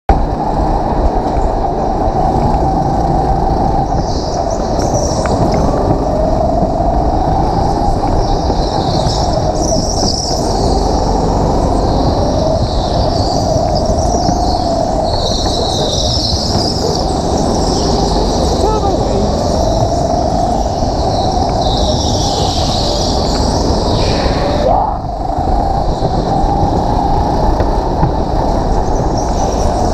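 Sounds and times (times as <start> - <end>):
go-kart engine running: 9.0 - 24.4.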